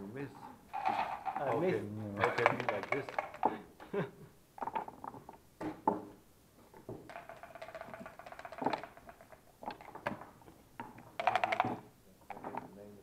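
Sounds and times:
backgammon checkers and dice clicking: 0.7 - 3.7, 4.6 - 5.4, 6.7 - 13.0.

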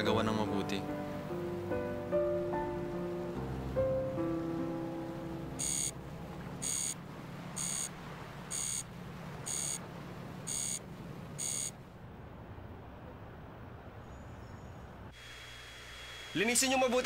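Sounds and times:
low steady hum: 1.0 - 16.3
high-pitched electronic beeps: 5.6 - 5.9, 6.6 - 7.0, 7.6 - 7.9, 9.5 - 9.8.

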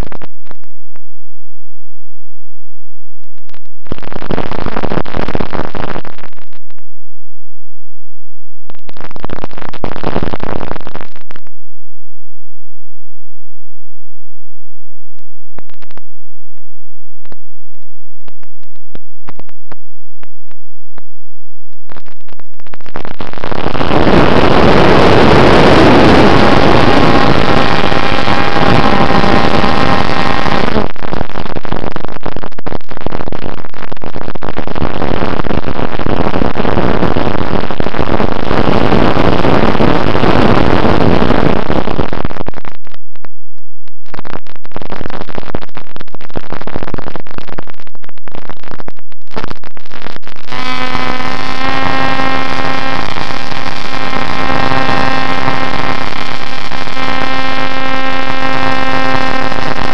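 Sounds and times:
clicks: 3.2 - 7.0, 15.2 - 21.1, 21.7 - 23.9, 41.6 - 51.0
wind rush: 21.9 - 43.2
electric motor and propeller: 23.7 - 30.9, 50.6 - 59.9.

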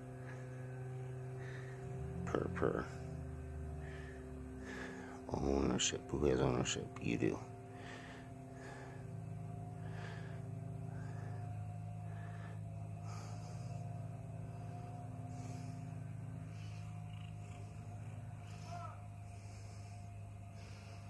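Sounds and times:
cat purring: 0.0 - 21.0
cat breathing softly: 7.5 - 21.0.

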